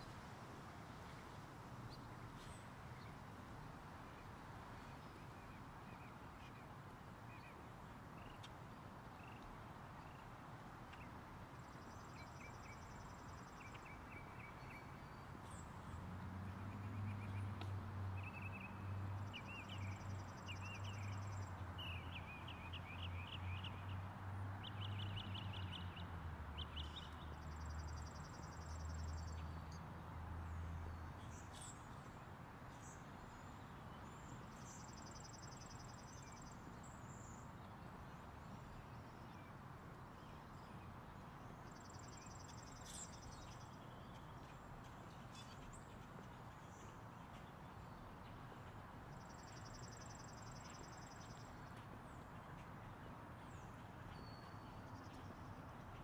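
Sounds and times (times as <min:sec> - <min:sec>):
steady outdoor hiss: 0:00.0 - 0:56.0
birds singing trills: 0:41.8 - 0:47.5, 0:49.1 - 0:51.6.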